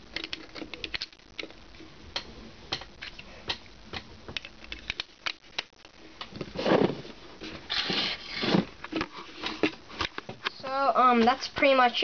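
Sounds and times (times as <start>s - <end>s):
plastic bricks clicking: 0.1s - 1.6s.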